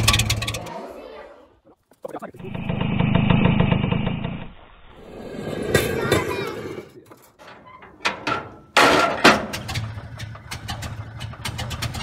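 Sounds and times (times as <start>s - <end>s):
old truck engine running: 0.0s - 0.6s, 8.8s - 12.0s.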